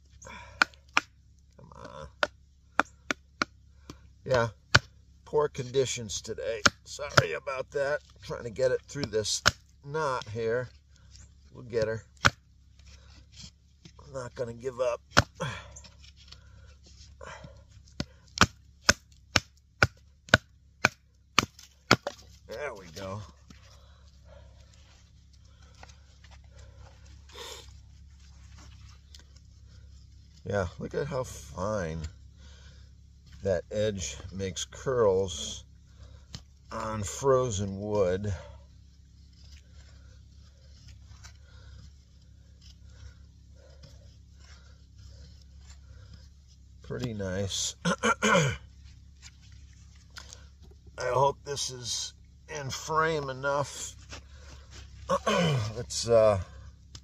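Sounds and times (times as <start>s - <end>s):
knife scraping wood: 10.7s - 14.4s, 15.0s - 30.5s, 38.4s - 51.0s.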